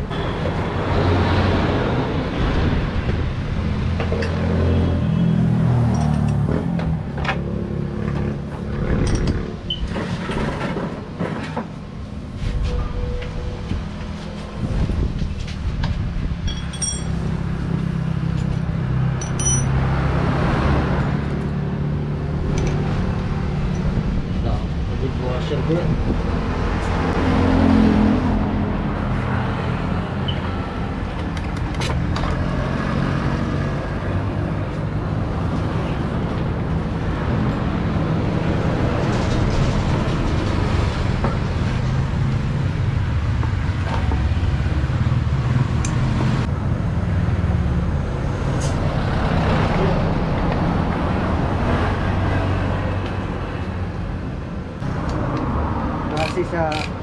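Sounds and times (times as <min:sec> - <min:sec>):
vehicles passing on road: 0:00.0 - 0:57.0
hand tools clicking on metal: 0:19.2 - 0:19.7, 0:56.1 - 0:57.0.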